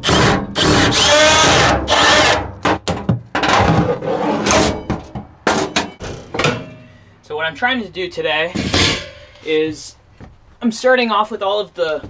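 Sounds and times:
cordless drill whining: 0.0 - 2.4.

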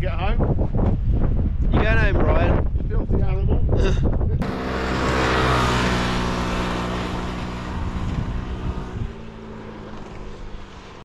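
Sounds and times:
vehicle engine running: 4.4 - 11.0.

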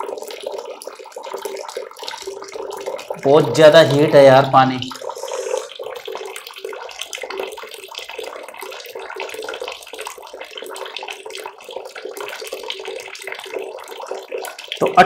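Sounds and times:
water pouring into plastic bucket: 0.0 - 15.0.

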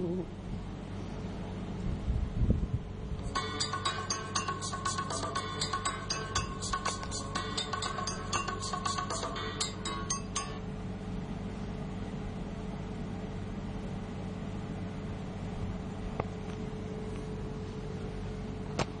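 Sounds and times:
low mechanical hum and hiss: 0.0 - 19.0
chiming nursery tune: 3.3 - 10.7.

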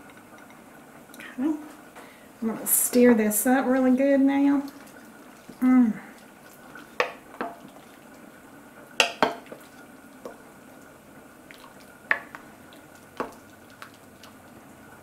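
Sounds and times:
spoon stirring food: 3.4 - 14.6
spoon knocking ceramic crock: 9.0 - 9.4.

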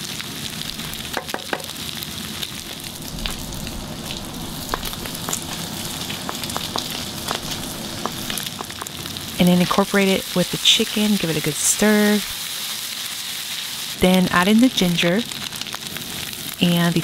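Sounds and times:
meat sizzling in a pan: 0.0 - 17.0.

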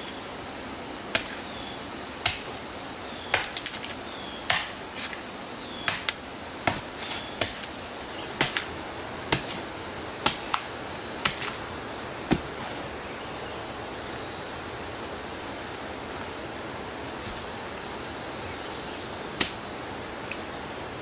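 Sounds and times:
steady background hiss: 0.0 - 21.0
machete chopping into stump: 3.3 - 5.2, 5.9 - 7.7, 8.4 - 8.7, 9.3 - 9.6, 10.2 - 11.6, 12.3 - 12.8.

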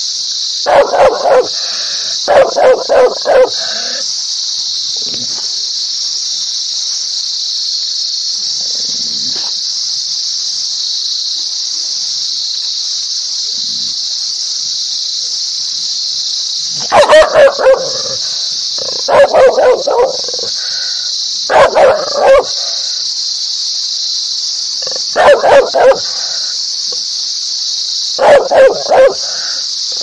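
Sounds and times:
steady high hiss: 0.0 - 30.0
dog barking: 0.7 - 4.0, 16.8 - 20.6, 21.5 - 22.9, 24.8 - 26.4, 28.2 - 30.0.

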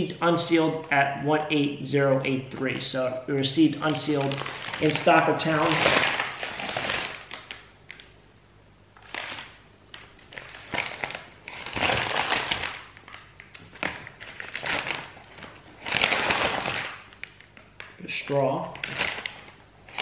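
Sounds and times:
paper mailer bag crinkling: 3.7 - 8.1, 9.0 - 17.6, 18.4 - 20.0.

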